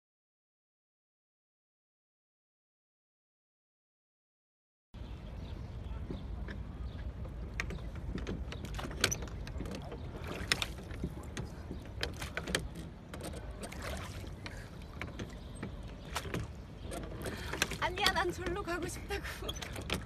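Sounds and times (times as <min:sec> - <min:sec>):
oars knocking in oarlocks: 0:07.3 - 0:18.9
oar blades splashing: 0:07.7 - 0:20.0.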